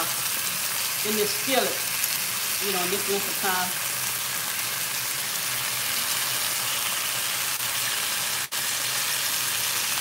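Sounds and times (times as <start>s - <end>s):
meat sizzling in a skillet: 0.0s - 10.0s.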